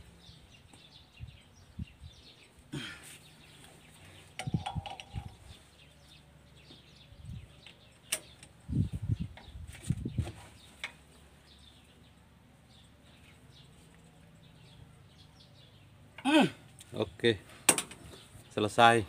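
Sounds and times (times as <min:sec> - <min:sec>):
birds chirping faintly: 0:00.0 - 0:19.0
socket wrench clinking on metal: 0:04.4 - 0:05.4.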